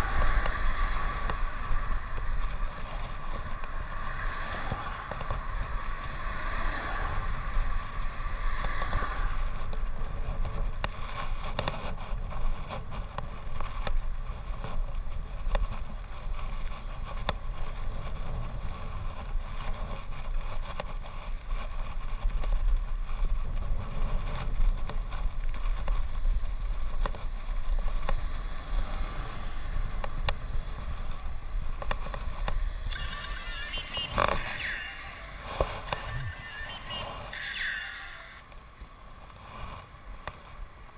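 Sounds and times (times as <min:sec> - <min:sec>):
bicycle clicks and rattles: 0:00.0 - 0:33.0
road rumble: 0:00.0 - 0:40.9
wind noise: 0:00.0 - 0:40.9.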